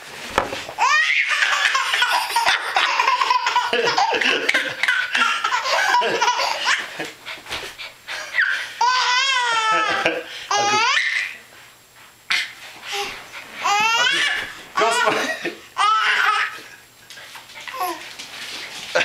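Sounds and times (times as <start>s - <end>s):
baby belly-laughing: 0.8s - 7.0s.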